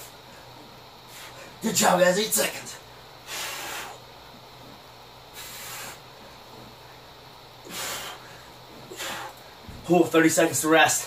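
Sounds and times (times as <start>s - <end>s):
steady low hum: 0.0s - 11.0s
man blowing out forceful breaths: 3.2s - 4.2s, 5.3s - 6.4s, 7.6s - 9.7s.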